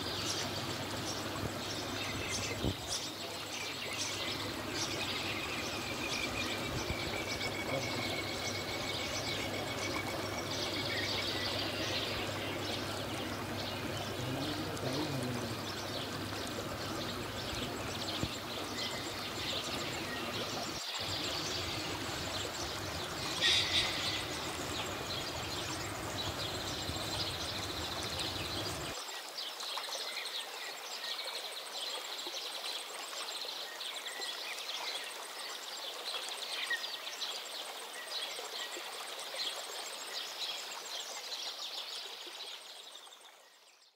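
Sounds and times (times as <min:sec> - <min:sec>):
aquarium water bubbling: 0:04.0 - 0:29.0.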